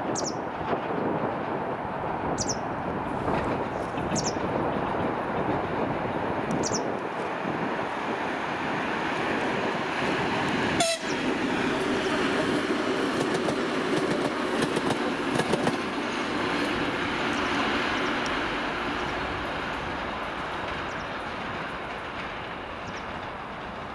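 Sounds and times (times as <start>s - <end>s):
diesel locomotive engine drone: 0.0s - 23.9s
wheels clicking over rail joints: 9.2s - 23.9s.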